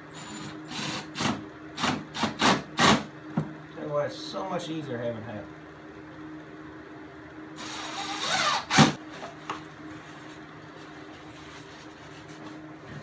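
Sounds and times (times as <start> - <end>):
cordless drill driving screw: 7.6 - 9.0.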